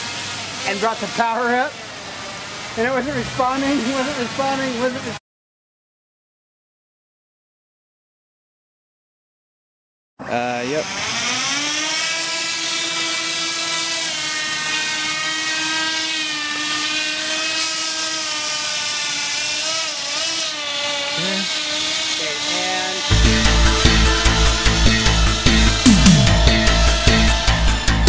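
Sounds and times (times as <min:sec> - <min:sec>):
electric motors and propellers whining: 0:00.0 - 0:05.2, 0:10.2 - 0:28.0
loud electronic music: 0:23.1 - 0:28.0.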